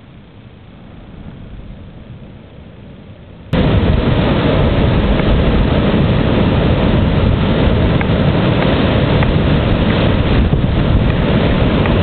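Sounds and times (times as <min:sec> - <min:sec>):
wind buffeting microphone: 0:03.4 - 0:12.0.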